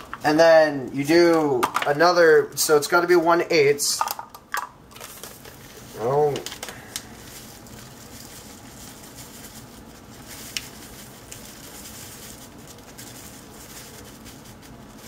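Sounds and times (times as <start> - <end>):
dry mix pouring from paper packet: 5.0 - 15.0.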